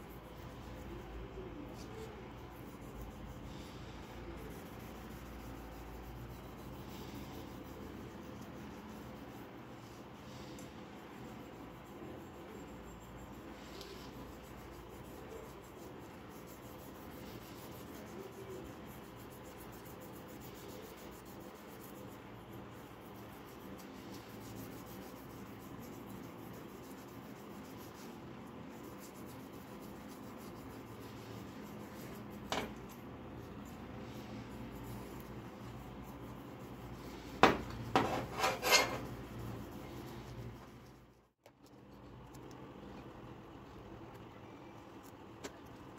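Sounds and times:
abrasive pad scratching knife blade: 37.4s - 39.3s.

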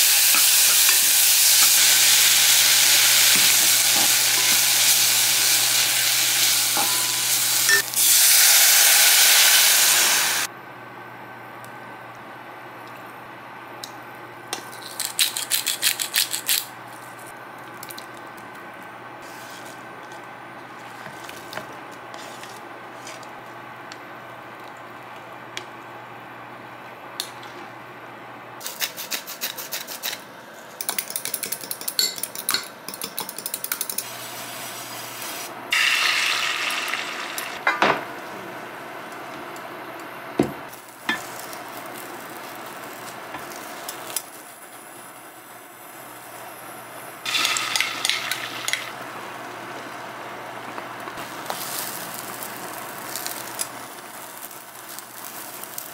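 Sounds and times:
sizzling hiss: 0.0s - 10.5s, 40.7s - 50.0s, 51.2s - 55.9s.

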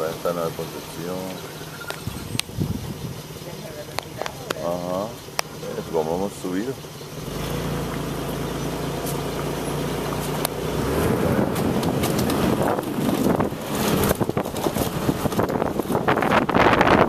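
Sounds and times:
vehicle engine humming: 0.0s - 17.0s
wind buffeting microphone: 1.8s - 4.6s, 10.6s - 17.0s.

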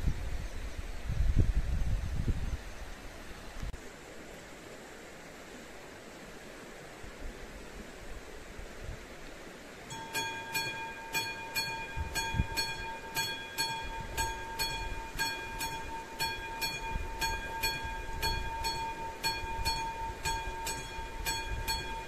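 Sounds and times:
level crossing warning bell ringing: 9.9s - 22.0s.

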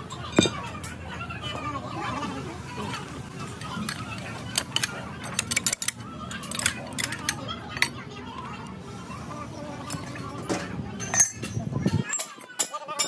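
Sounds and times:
metal tools clinking: 0.2s - 0.6s, 3.6s - 8.0s, 11.0s - 12.8s.

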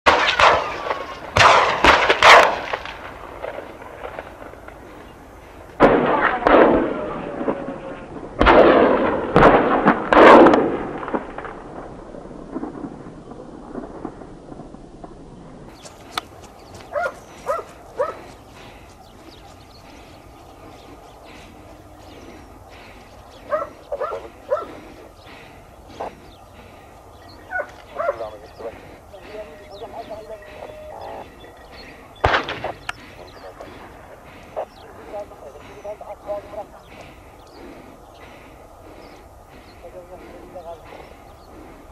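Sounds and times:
echoing gunshots: 0.1s - 41.9s
dog barking: 16.9s - 18.3s, 23.5s - 24.8s, 27.4s - 28.7s.

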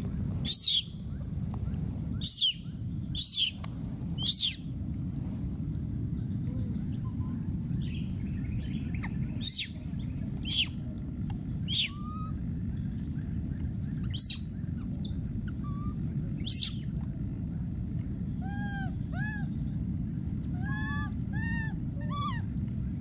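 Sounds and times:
baby monkey screaming: 0.5s - 0.9s, 2.2s - 2.6s, 3.2s - 3.6s, 4.2s - 4.6s, 8.9s - 9.8s, 10.4s - 10.8s, 11.6s - 12.4s, 14.0s - 14.5s, 15.4s - 16.8s, 18.4s - 19.5s, 20.5s - 22.5s.

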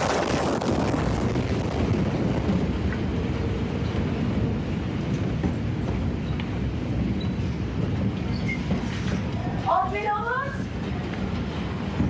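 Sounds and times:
explosion rumbling roar: 0.0s - 4.6s.

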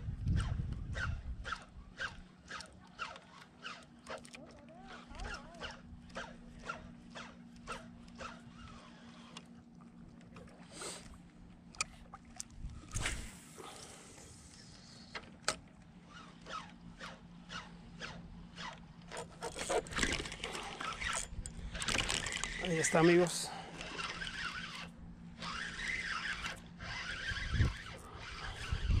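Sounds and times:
spinning reel cranking: 0.3s - 9.4s, 16.1s - 29.0s
clicks and scraping: 11.7s - 29.0s.

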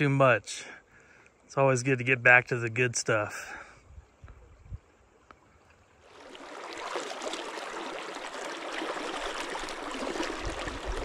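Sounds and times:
river water rushing: 6.0s - 11.0s.

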